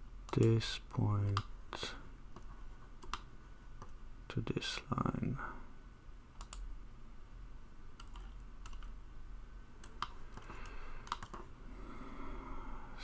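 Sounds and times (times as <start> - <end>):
faint steady low hum: 0.0 - 13.0
computer mouse clicks: 0.3 - 0.6, 1.2 - 1.5, 2.4 - 4.0, 6.4 - 6.7, 8.0 - 9.0, 9.8 - 11.5.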